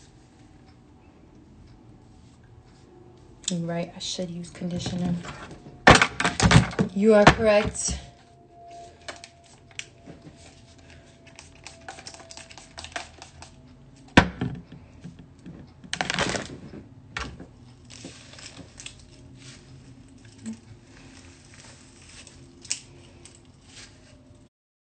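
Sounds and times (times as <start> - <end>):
hair brushing crackle: 8.6 - 13.7, 17.8 - 24.5.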